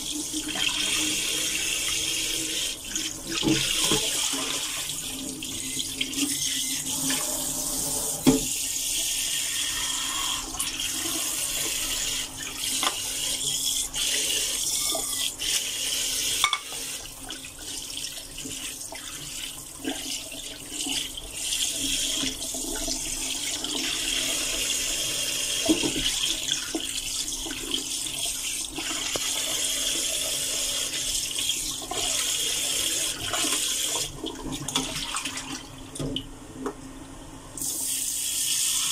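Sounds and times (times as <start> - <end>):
tap running into a steel sink: 8.2 - 8.6.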